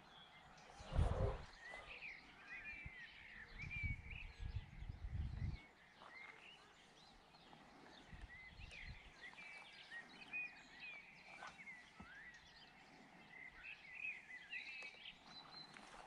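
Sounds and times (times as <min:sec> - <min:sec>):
songbirds chirping: 0:00.0 - 0:16.0
wind rumbling on microphone: 0:00.7 - 0:01.9, 0:02.7 - 0:05.8, 0:07.9 - 0:09.5.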